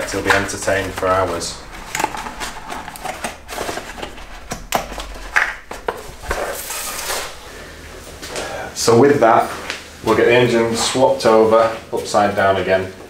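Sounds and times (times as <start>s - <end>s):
short rustle: 0.2s - 8.6s.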